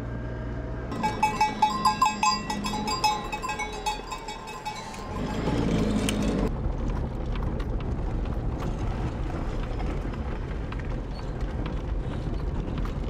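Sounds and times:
vehicle engine hum: 0:00.0 - 0:13.0
sheep bells clanking: 0:00.9 - 0:06.5.

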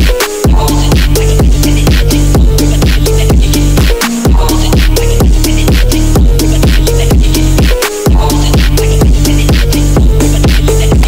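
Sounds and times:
deep bass: 0:00.0 - 0:11.0
soundtrack music with fast drum beat: 0:00.0 - 0:11.0.

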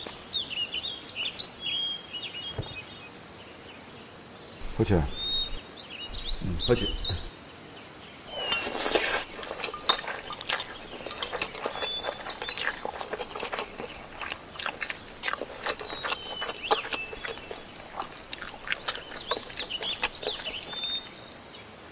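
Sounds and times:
bird chirps: 0:04.6 - 0:07.3, 0:13.5 - 0:21.4.

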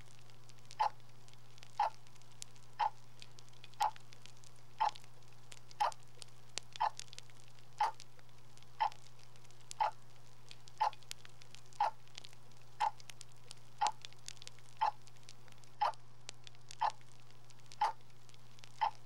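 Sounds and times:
clock ticking: 0:00.7 - 0:01.0, 0:01.8 - 0:02.0, 0:02.8 - 0:03.0, 0:03.7 - 0:04.0, 0:04.8 - 0:05.0, 0:05.8 - 0:06.0, 0:06.7 - 0:07.0, 0:07.8 - 0:08.0, 0:08.8 - 0:09.0, 0:09.7 - 0:10.0, 0:10.7 - 0:11.1, 0:11.7 - 0:12.0, 0:12.8 - 0:13.1, 0:14.8 - 0:15.1, 0:16.7 - 0:17.1, 0:17.7 - 0:18.0, 0:18.7 - 0:19.0.

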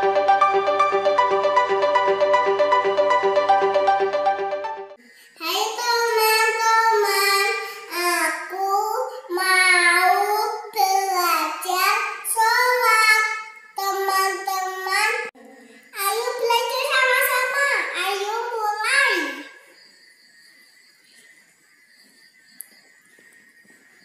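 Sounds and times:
girl chanting prayer: 0:05.4 - 0:19.6.

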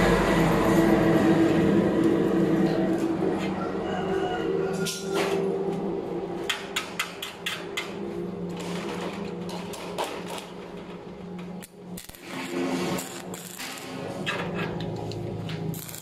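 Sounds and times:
arc welder humming: 0:07.2 - 0:16.0.

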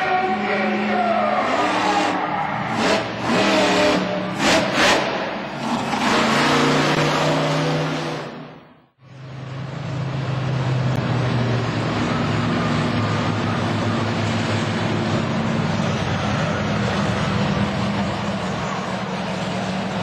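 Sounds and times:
monster truck engines revving: 0:00.0 - 0:20.0
monster truck engines rumbling: 0:00.0 - 0:20.0.

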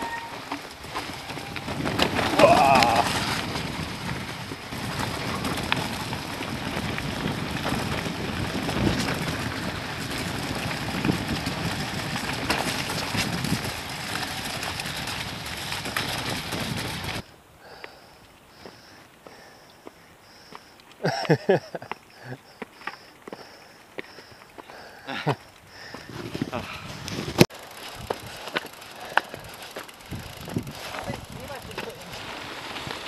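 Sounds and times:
bike knocks and rattles: 0:00.0 - 0:17.2, 0:27.1 - 0:33.0
bike tyre rumble: 0:00.0 - 0:33.0
wind buffeting microphone: 0:00.7 - 0:17.3, 0:25.3 - 0:33.0.

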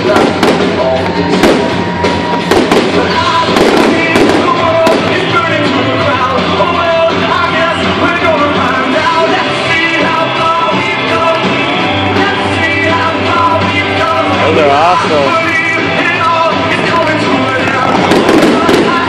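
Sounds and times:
loud song with singer and band: 0:00.0 - 0:19.0.

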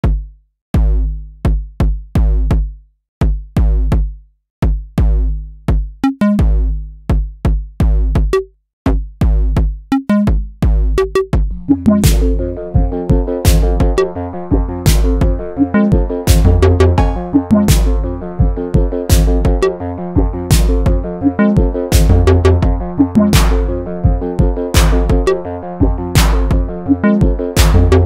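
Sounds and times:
drum machine kicks: 0:11.1 - 0:19.6, 0:20.2 - 0:28.0
held synth chords: 0:11.5 - 0:28.0
short pitched synth notes: 0:11.7 - 0:18.4.

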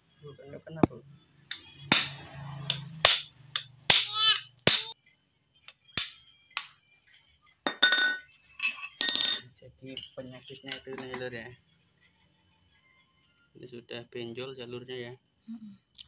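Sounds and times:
metal-on-metal knocks and clinks: 0:07.7 - 0:11.3.

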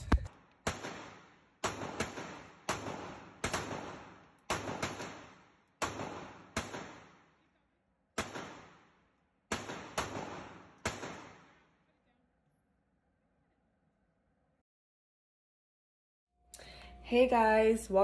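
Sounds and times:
handgun shots echoing: 0:00.7 - 0:07.4, 0:08.2 - 0:11.6.

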